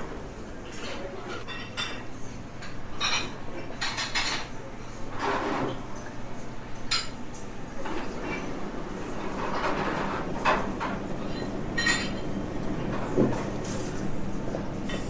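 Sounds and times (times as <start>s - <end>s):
cutlery and dishes clattering: 0.7s - 6.1s, 9.2s - 14.0s.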